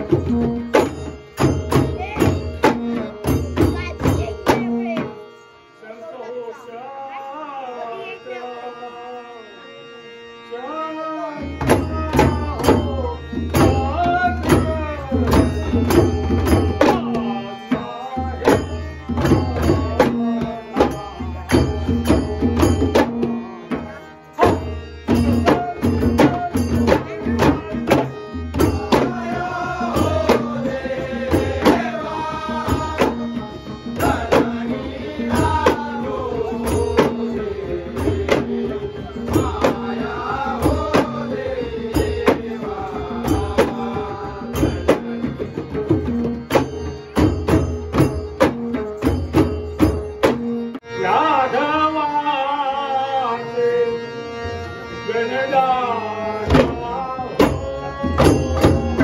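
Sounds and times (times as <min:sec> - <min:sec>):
clay-pot drums beating: 0:00.0 - 0:05.2, 0:11.6 - 0:50.8, 0:56.5 - 0:59.0
harmonium: 0:00.0 - 0:59.0.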